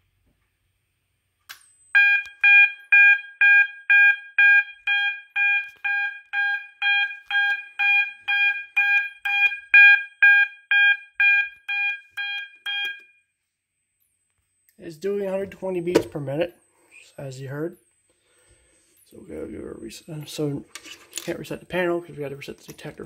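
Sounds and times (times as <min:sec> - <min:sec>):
fire alarm horns pulsing: 0:01.9 - 0:13.2.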